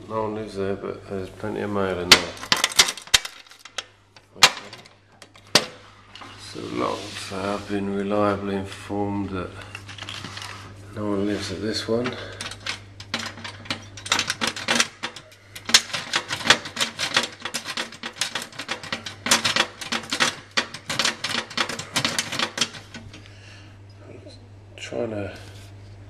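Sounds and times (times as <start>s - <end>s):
lock pick clicking and rattling: 12.4s - 23.2s.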